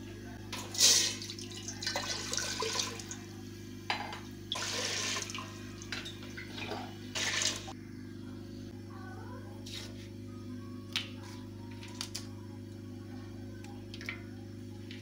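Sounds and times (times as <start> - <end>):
steady low hum: 0.0 - 15.0
water running into metal pot: 0.7 - 3.2, 4.5 - 7.7.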